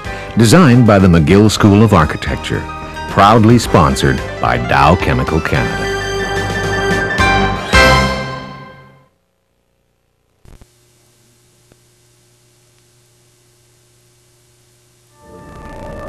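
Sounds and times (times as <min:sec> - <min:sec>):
music: 0:00.0 - 0:09.1, 0:15.1 - 0:16.0
videotape hiss: 0:00.0 - 0:16.0
low hum: 0:08.6 - 0:16.0.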